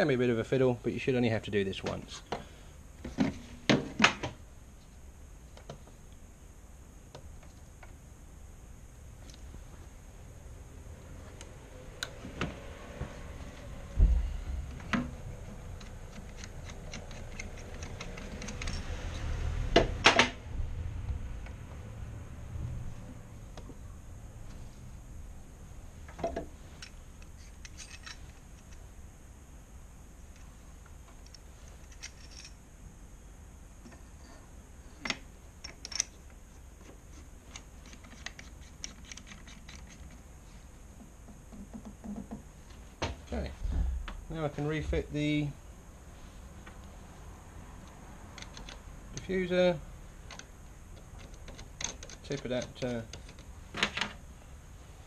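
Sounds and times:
dull thump: 14.0s - 14.4s, 43.0s - 44.3s
small metal parts clicking and scraping: 15.4s - 19.3s, 26.6s - 28.9s, 31.2s - 32.6s, 35.0s - 36.3s, 36.9s - 40.3s, 50.3s - 53.5s.

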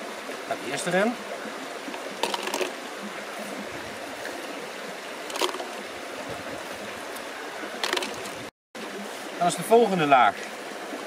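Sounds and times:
brook flowing: 0.0s - 11.0s.

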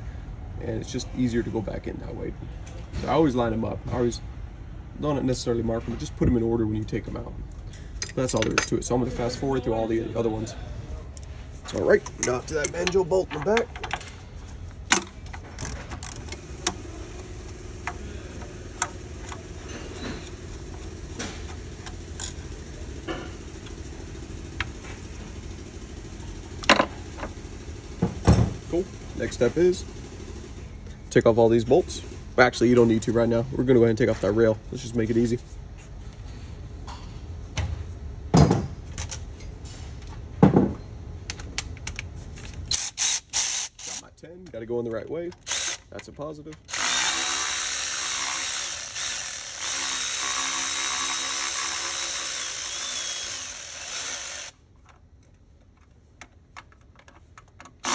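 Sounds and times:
steady low hum: 0.0s - 57.9s.

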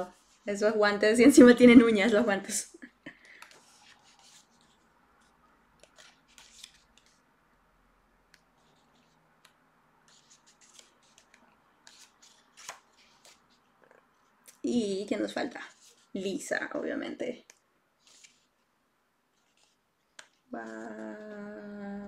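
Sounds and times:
photobook pages turning: 3.3s - 7.2s, 8.3s - 14.3s, 15.2s - 18.7s, 19.3s - 21.6s.

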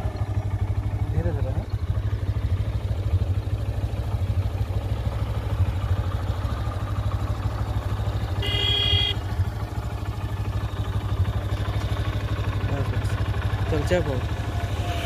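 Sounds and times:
motorcycle engine running: 0.0s - 15.0s
horn honk: 8.3s - 9.4s.

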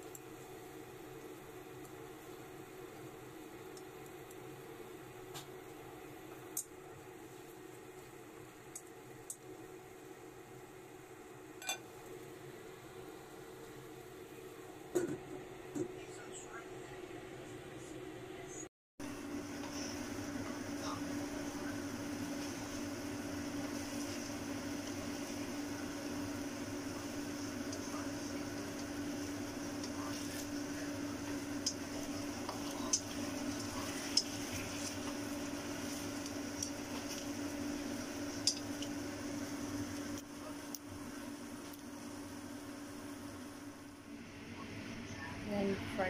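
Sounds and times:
steady hum: 0.0s - 46.0s
chicken wings sizzling: 19.0s - 45.8s
chopsticks clicking on pan: 38.4s - 38.9s.

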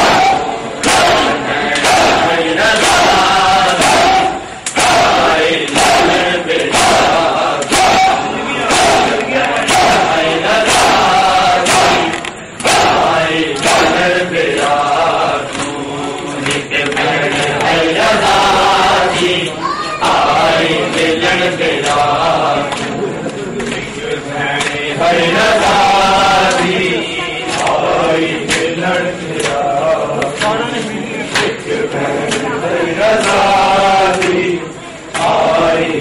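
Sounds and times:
men chanting a lament: 0.0s - 36.0s
hands slapping chests: 3.7s - 10.1s.

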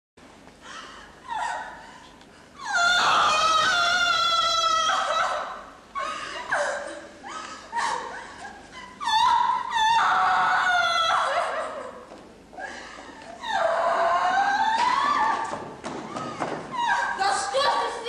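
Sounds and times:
woman wailing in distress: 2.6s - 12.1s, 13.4s - 17.2s.

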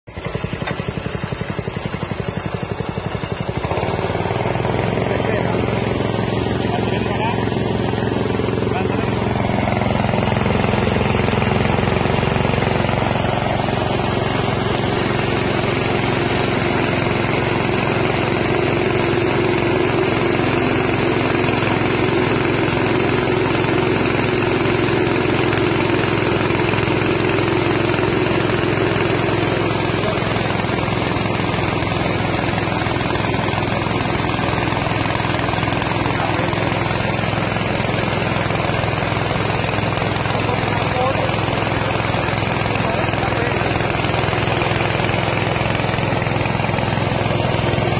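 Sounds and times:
small petrol engine running: 0.0s - 47.9s.

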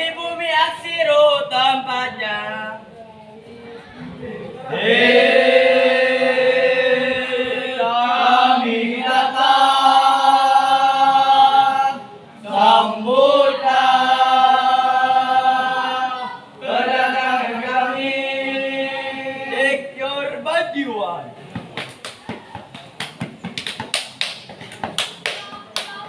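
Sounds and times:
young men chanting in unison: 4.4s - 20.3s.

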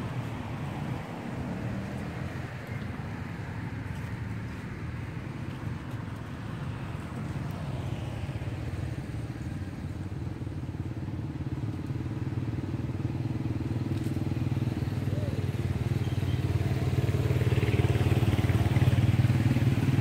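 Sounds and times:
motorcycle engine running: 9.3s - 20.0s.

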